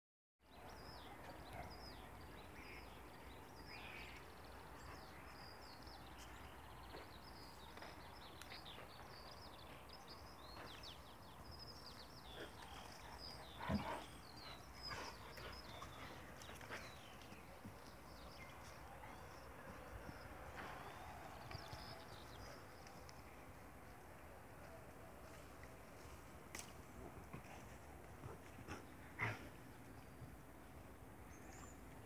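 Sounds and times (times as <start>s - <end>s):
small birds chirping: 0.5s - 24.3s
dogs playing: 10.2s - 23.8s, 26.9s - 30.4s.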